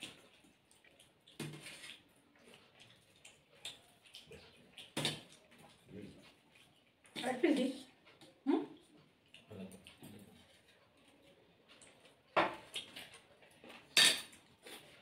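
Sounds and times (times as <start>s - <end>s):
spoon clinking on steel dishes: 13.9s - 14.4s.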